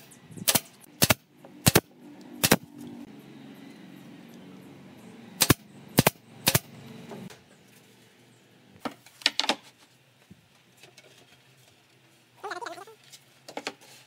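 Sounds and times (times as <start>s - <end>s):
pneumatic nail gun firing: 0.0s - 2.7s, 5.4s - 6.7s.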